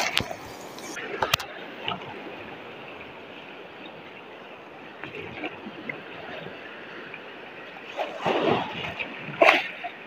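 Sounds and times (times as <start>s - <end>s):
shallow surf rushing: 0.0s - 10.0s
small water splashes: 7.8s - 10.0s.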